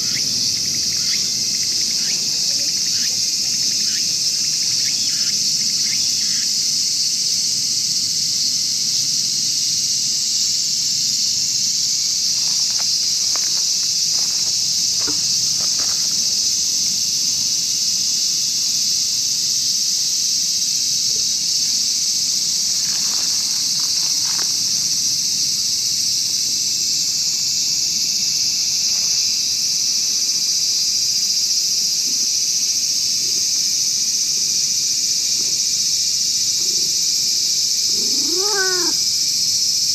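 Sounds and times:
high-pitched insect chorus: 0:00.0 - 0:39.9
faint rustles: 0:12.1 - 0:17.0, 0:37.9 - 0:39.0.

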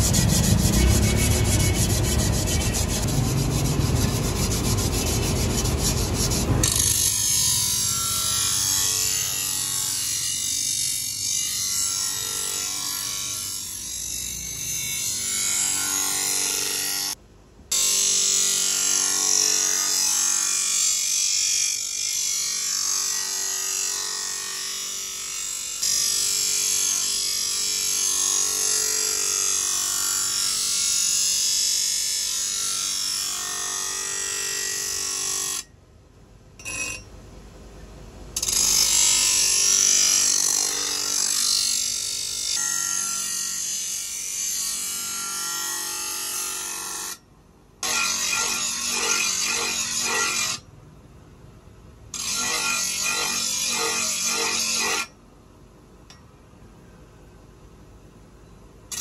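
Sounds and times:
grinder motor hum: 0:00.0 - 0:09.8
grinder wheel grinding steel: 0:00.0 - 0:17.1, 0:36.6 - 0:37.1, 0:52.2 - 0:55.1.

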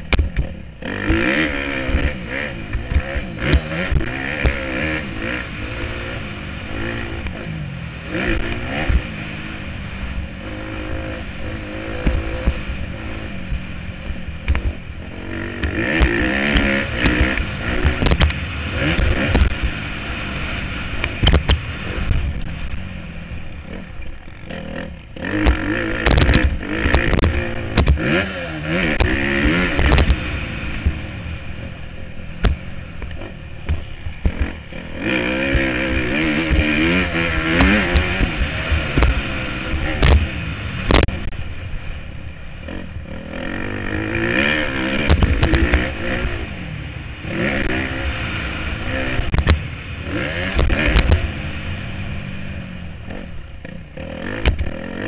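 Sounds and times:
bike knocks and clatter: 0:00.0 - 0:01.3, 0:25.3 - 0:28.2, 0:36.4 - 0:39.2
motocross bike engine revving: 0:00.0 - 0:55.0.

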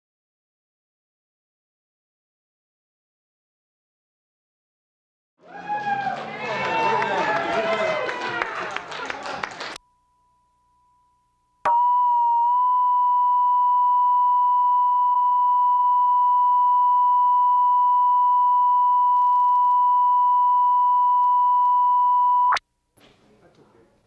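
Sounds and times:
steady test tone beep: 0:09.8 - 0:22.6.

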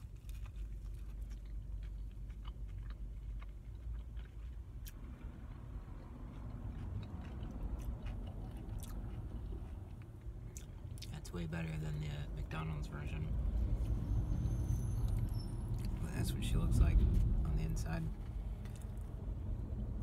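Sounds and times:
man chewing with wet mouth clicks: 0:00.0 - 0:11.2, 0:18.6 - 0:19.1
steady low rumble: 0:00.0 - 0:20.0.

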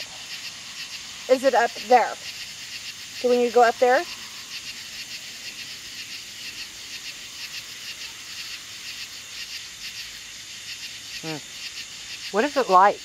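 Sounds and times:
night insects chirping: 0:00.0 - 0:13.0.

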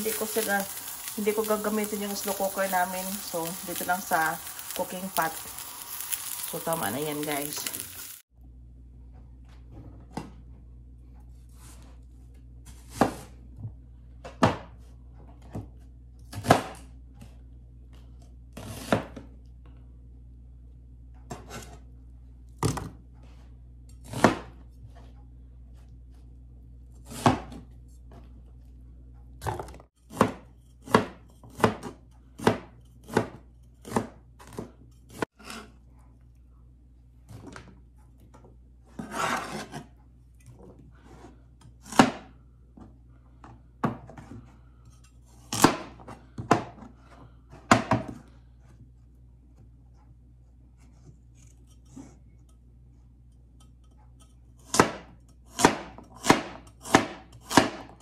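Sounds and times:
cleaver chopping on plastic board: 0:54.7 - 0:58.0.

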